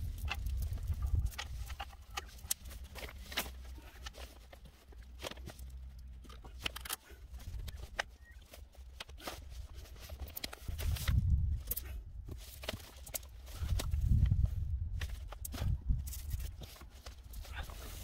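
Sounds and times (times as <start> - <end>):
steady low rumble: 0.0 - 8.4.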